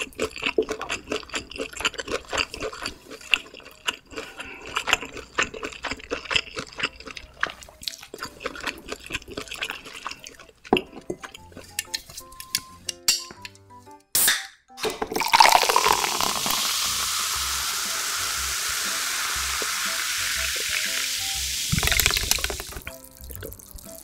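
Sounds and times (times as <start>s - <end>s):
soft background music: 0.2s - 24.0s
tap water running into sink: 15.1s - 23.9s.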